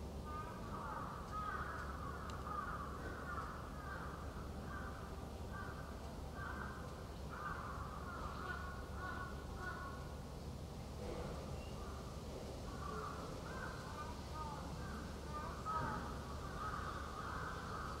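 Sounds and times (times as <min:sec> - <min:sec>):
birds making rasping calls: 0:12.7 - 0:18.0.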